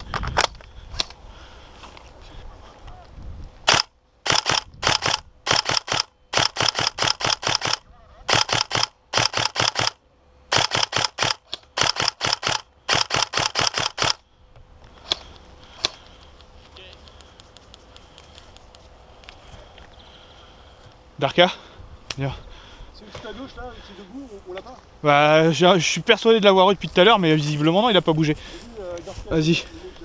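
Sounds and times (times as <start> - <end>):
airsoft rifle firing bursts: 3.7 - 14.2.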